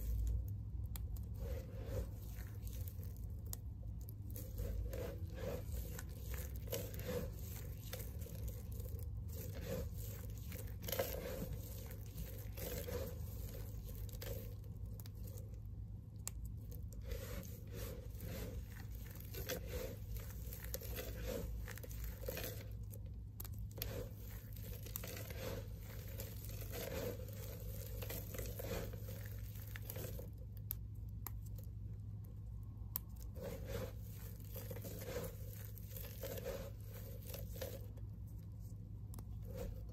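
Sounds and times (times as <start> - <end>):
soap chips crunching: 0.0 - 32.2, 32.9 - 38.3.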